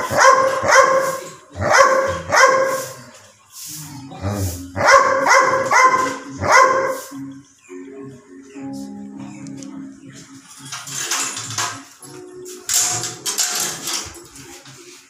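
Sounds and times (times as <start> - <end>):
dog barking: 0.0 - 3.1, 4.5 - 7.3.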